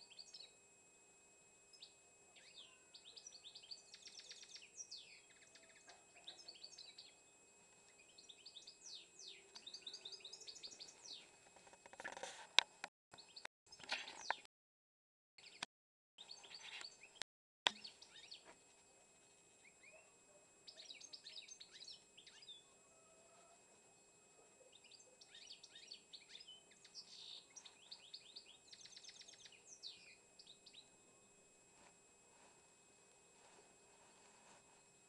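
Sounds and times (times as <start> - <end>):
songbird twittering: 1.7 - 7.2, 7.9 - 11.3, 16.2 - 18.4, 20.7 - 22.7, 24.7 - 30.9.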